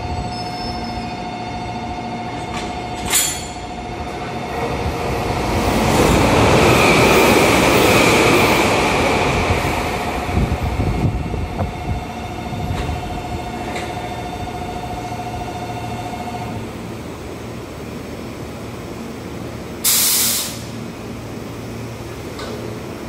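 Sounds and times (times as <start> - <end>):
low train rumble: 0.0 - 23.0
compressed air hiss: 19.8 - 20.8.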